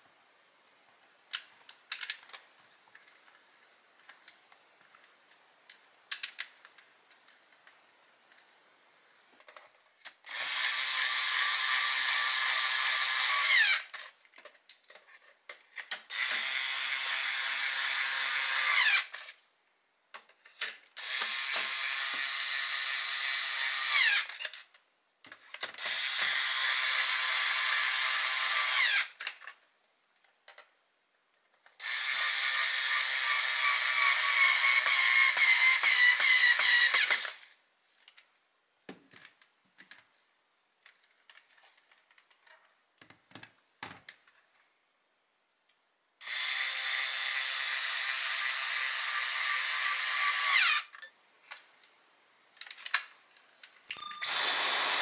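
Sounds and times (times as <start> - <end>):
vacuum motor whining: 54.0 - 55.0.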